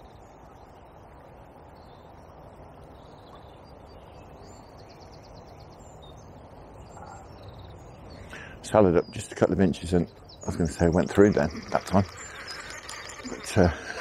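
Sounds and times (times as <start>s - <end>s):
birds chirping: 0.0s - 14.0s
bird rattling trill: 10.6s - 14.0s.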